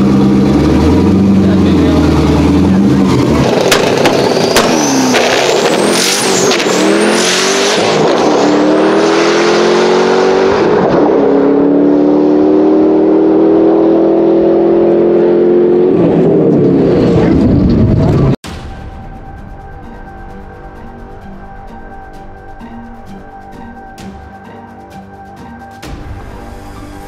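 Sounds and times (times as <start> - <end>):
car engine at full throttle: 0.0 - 18.4
high turbo whine: 0.0 - 24.0.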